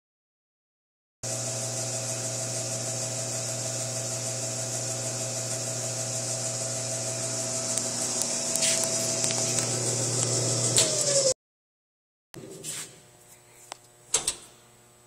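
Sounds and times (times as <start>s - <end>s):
dough mixer motor humming: 1.2s - 11.4s.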